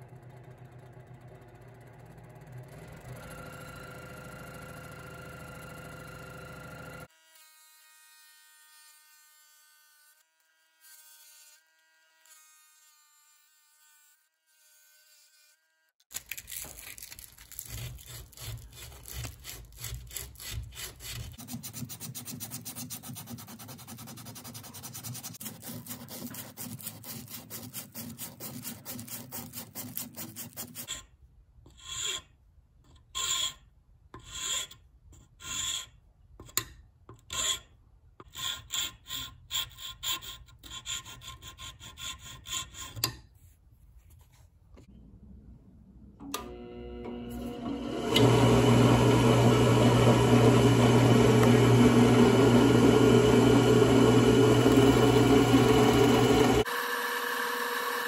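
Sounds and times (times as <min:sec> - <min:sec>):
fast rubbing on wood: 0:17.7 - 0:30.9
round file strokes: 0:17.7 - 0:31.0.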